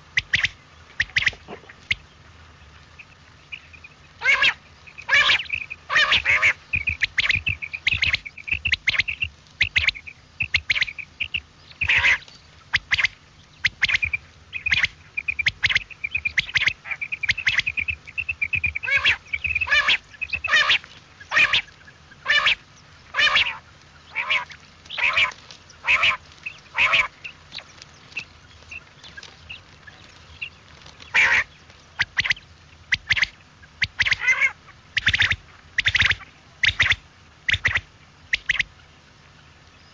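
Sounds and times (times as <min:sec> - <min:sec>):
quail calling: 0:00.0 - 0:39.9.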